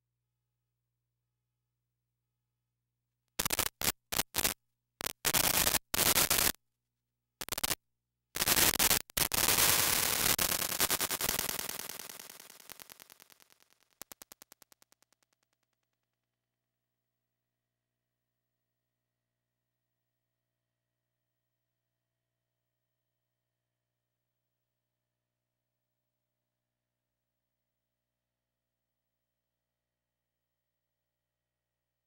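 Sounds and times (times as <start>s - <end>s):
harsh static bursts: 3.4s - 6.6s, 7.4s - 7.8s, 8.4s - 14.8s.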